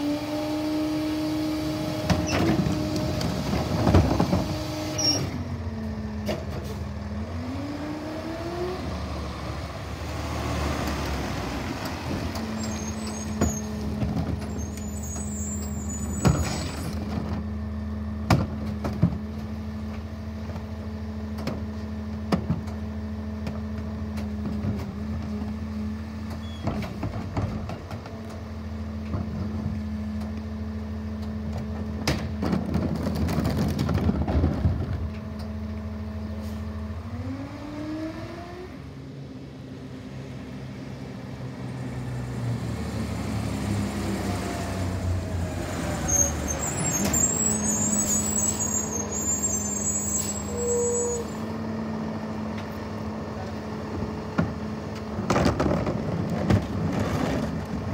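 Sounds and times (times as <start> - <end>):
engine revving: 7.1 - 12.8, 41.6 - 48.2.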